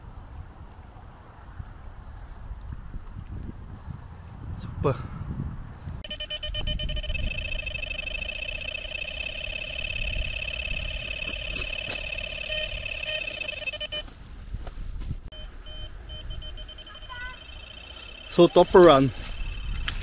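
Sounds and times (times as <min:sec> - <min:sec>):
short alarm beeps: 0:06.0 - 0:14.2, 0:15.3 - 0:20.0
bite alarm fast beeping: 0:06.0 - 0:14.6, 0:15.2 - 0:20.0.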